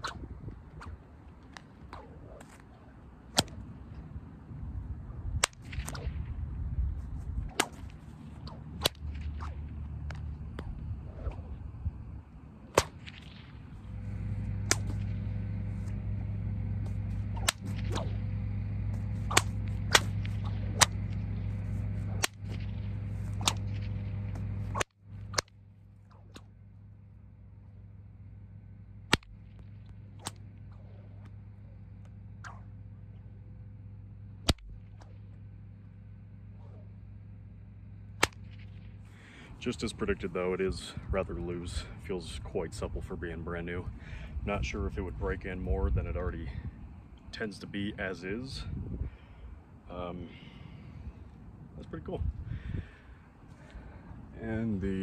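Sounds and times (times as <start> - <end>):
whip cracks: 0.0 - 3.8, 5.3 - 26.6, 29.0 - 32.9, 34.4 - 35.4, 36.5 - 37.0, 38.1 - 39.0
steady low hum: 0.0 - 55.0.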